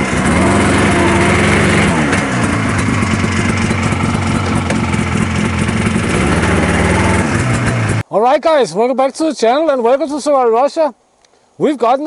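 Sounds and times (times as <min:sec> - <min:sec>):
snowmobile engine idling: 0:00.0 - 0:08.0.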